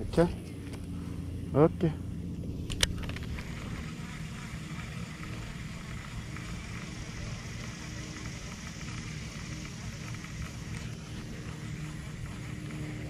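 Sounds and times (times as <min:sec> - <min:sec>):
distant road traffic hum: 0:00.0 - 0:13.0.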